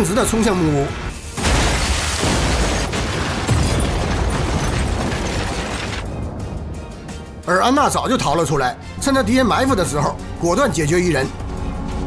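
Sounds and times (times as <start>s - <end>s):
loud explosion blasts: 1.4s - 6.8s.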